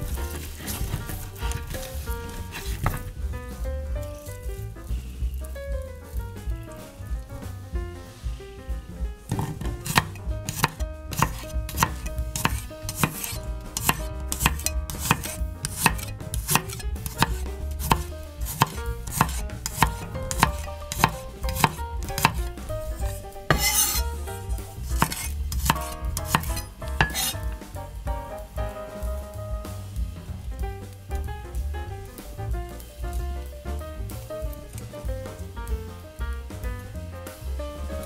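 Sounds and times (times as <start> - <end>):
knife tapping on cutting board: 9.3 - 22.4, 25.0 - 27.3.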